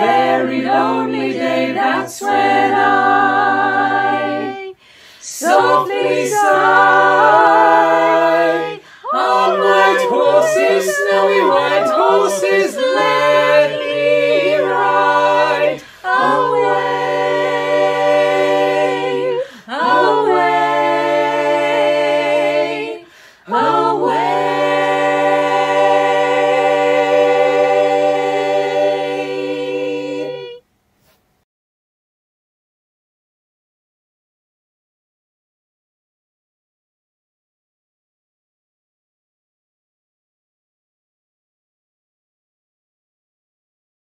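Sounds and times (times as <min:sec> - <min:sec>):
choir singing a cappella: 0:00.0 - 0:30.6.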